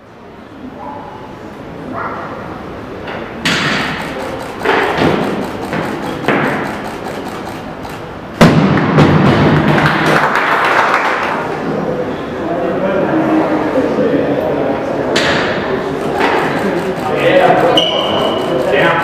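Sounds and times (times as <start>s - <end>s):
crowd noise: 0.0s - 19.0s
people clapping: 8.8s - 11.6s.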